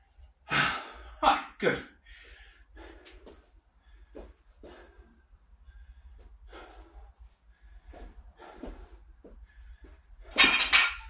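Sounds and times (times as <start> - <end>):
man breathing hard: 0.5 - 1.2, 2.0 - 10.3
metallic clanks: 10.3 - 11.0.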